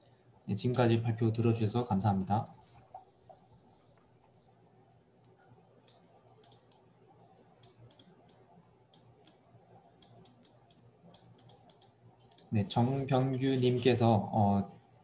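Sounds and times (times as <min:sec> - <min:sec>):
low room hum: 0:00.0 - 0:15.0
computer mouse clicks: 0:05.2 - 0:06.9, 0:07.6 - 0:12.5.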